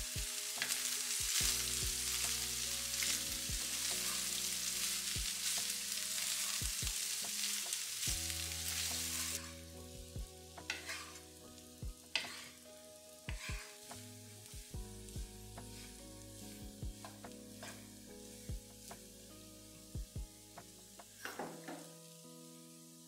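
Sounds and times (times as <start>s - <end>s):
spatula scraping and tossing rice: 0.0s - 9.7s, 10.6s - 11.4s, 12.1s - 12.7s, 13.3s - 14.1s, 15.2s - 19.0s
rice sizzling in a pan: 0.0s - 23.0s.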